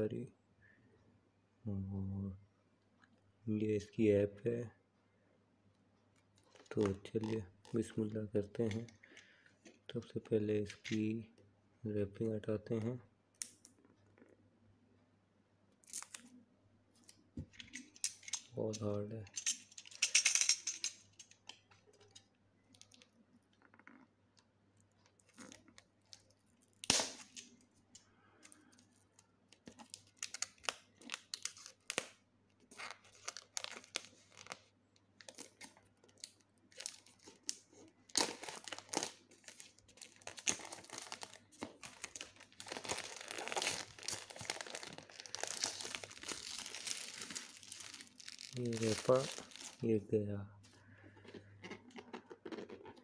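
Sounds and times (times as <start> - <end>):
plastic wrap crinkling and tearing: 6.4 - 7.9, 24.8 - 27.6, 28.4 - 49.9.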